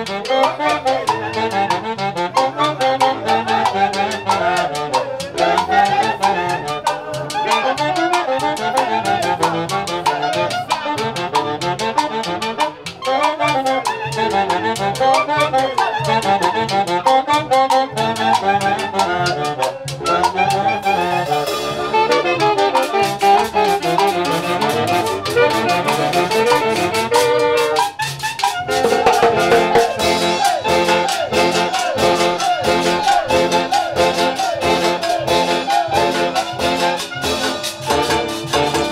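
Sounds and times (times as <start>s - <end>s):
horns playing melody: 0.0s - 38.9s
steady drum beat: 3.4s - 8.1s, 28.5s - 38.9s
orchestra playing dance music: 28.4s - 38.9s.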